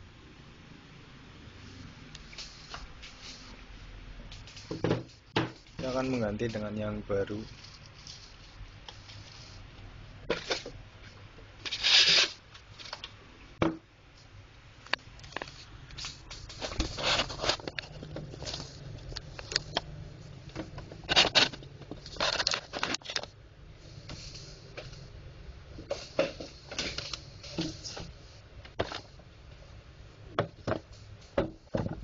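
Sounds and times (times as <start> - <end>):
rustling scrapes: 1.6 - 3.6, 7.3 - 9.7, 10.3 - 13.0, 15.3 - 25.1.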